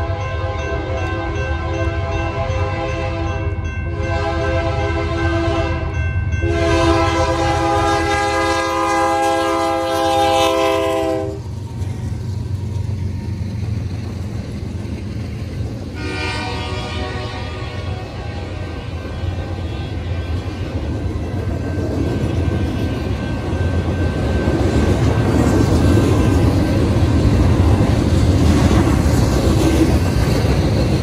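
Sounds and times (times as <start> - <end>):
locomotive air horn: 0.0 - 11.4, 15.9 - 20.6
diesel locomotive rumble: 0.0 - 31.0
train cars rolling past: 0.0 - 31.0.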